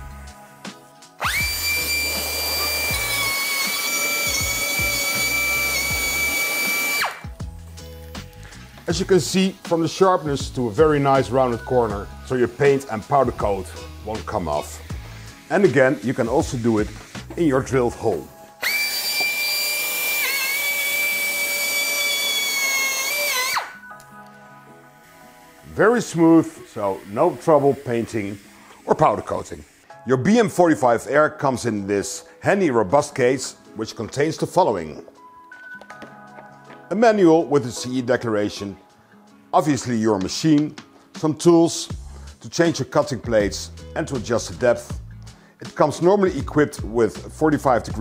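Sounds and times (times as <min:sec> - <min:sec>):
faint background music: 0:00.0 - 0:19.0, 0:20.1 - 0:48.0
pneumatic bevelling machine whine: 0:01.2 - 0:07.3, 0:18.6 - 0:23.8.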